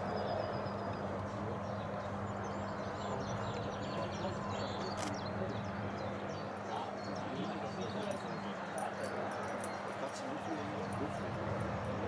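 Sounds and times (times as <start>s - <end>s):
faint birdsong: 0.0s - 12.0s
single click: 4.9s - 5.2s.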